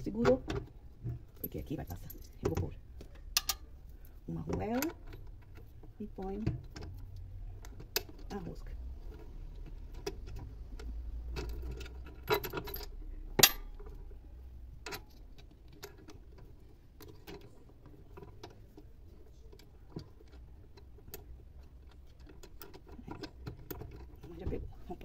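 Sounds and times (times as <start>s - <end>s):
metal clicks of nut on bolt: 2.4s - 3.7s.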